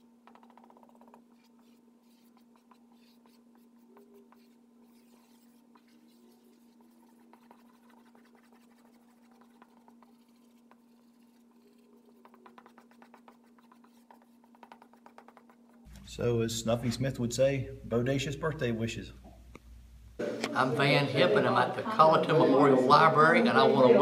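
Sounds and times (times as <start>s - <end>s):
marker pen scratching on paper: 0.0s - 15.9s.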